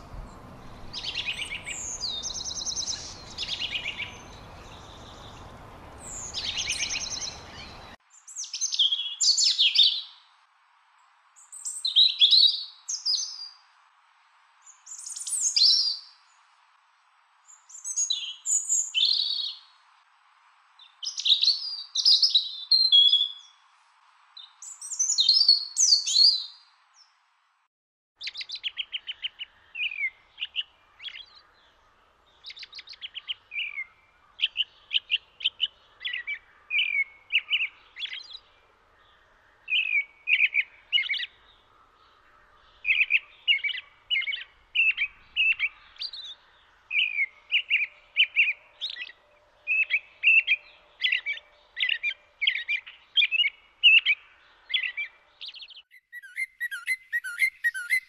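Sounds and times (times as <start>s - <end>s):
steady hiss: 0.0s - 8.0s
robin singing warbling phrases: 0.2s - 10.1s, 42.1s - 58.0s.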